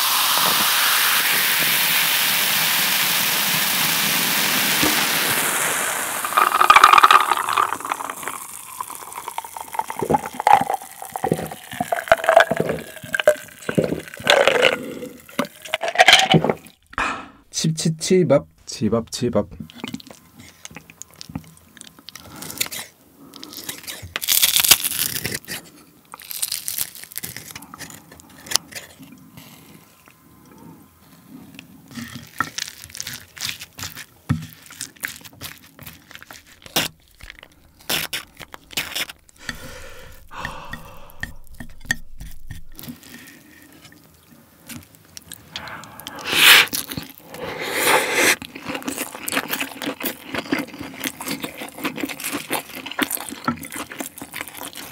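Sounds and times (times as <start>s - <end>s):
close chewing: 7.8s - 15.7s, 31.1s - 43.1s, 45.2s - 54.9s.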